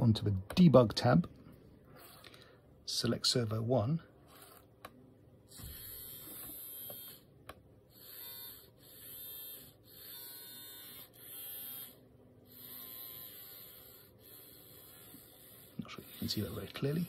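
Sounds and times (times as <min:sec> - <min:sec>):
servo motor whirring: 0:04.3 - 0:04.7, 0:05.5 - 0:07.2, 0:07.9 - 0:17.0.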